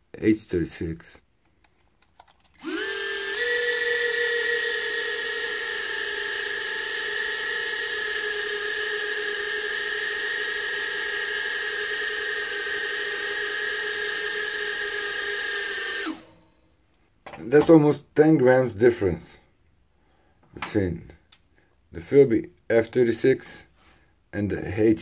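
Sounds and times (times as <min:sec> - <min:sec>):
quadcopter motors whining: 0:02.6 - 0:16.4.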